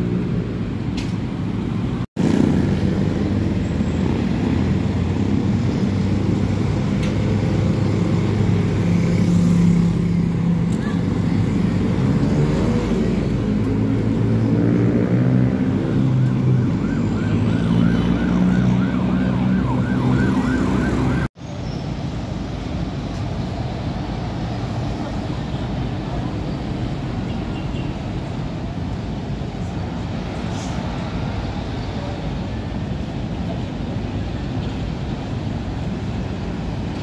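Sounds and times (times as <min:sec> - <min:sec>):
trucks and cars passing: 0:00.0 - 0:37.0
siren whooping: 0:15.8 - 0:21.3.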